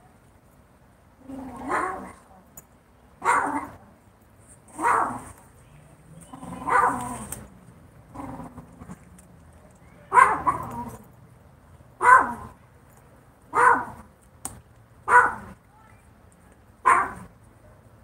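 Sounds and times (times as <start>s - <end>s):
dog barking: 3.2s - 3.8s, 4.8s - 5.3s, 6.6s - 7.2s, 10.1s - 10.8s, 12.0s - 12.6s, 13.5s - 14.0s, 15.1s - 15.6s, 16.8s - 17.3s.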